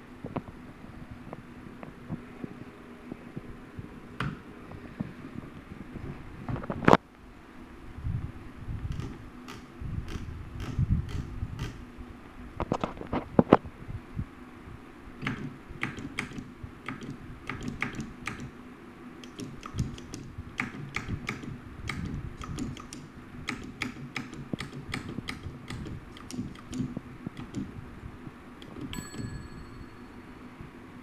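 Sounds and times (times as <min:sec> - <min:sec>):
typewriter clicking: 0:15.2 - 0:18.5, 0:19.2 - 0:27.7.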